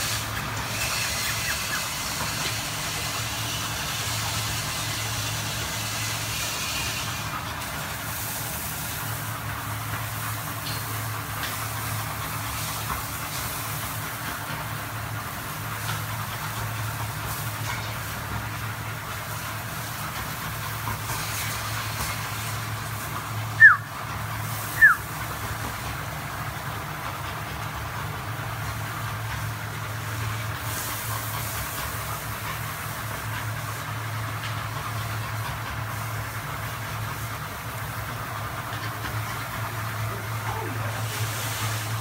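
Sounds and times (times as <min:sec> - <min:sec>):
dog yelping: 0:23.6 - 0:23.8, 0:24.8 - 0:25.0.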